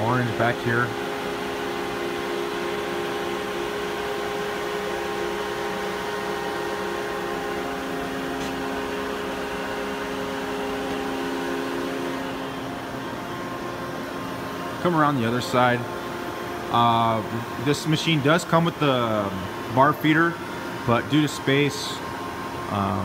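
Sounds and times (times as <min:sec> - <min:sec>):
machine hum and whir: 0:00.0 - 0:23.0.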